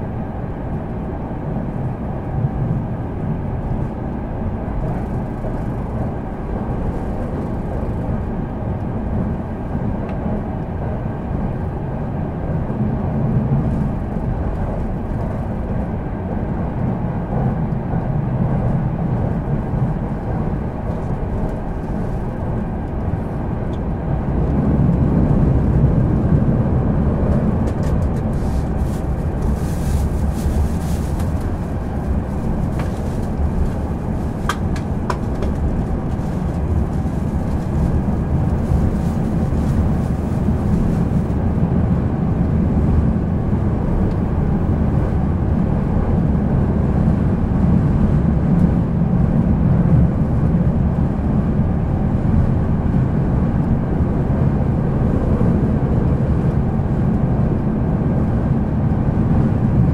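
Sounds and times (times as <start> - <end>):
train wheels rumbling on rail: 0.0 - 59.9.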